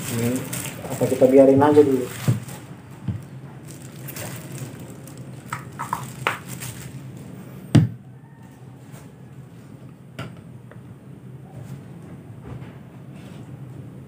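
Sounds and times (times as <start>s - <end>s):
bottle knocking on a mat: 7.8s - 8.0s.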